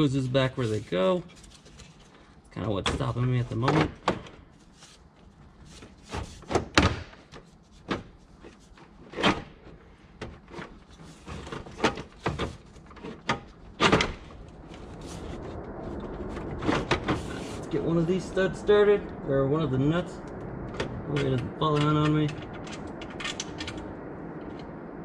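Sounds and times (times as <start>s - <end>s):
knocks and clunks of car parts: 6.1s - 8.2s.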